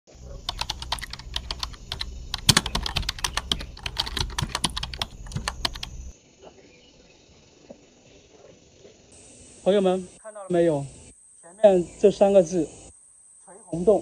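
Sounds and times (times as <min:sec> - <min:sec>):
low steady hum: 0:00.1 - 0:06.1
keyboard key clicks: 0:00.4 - 0:06.1.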